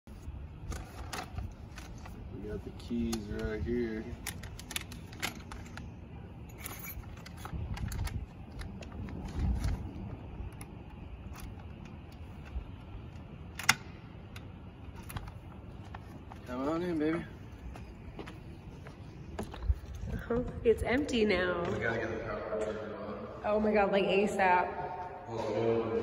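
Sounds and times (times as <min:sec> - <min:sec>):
keys jangling: 0:06.4 - 0:08.2.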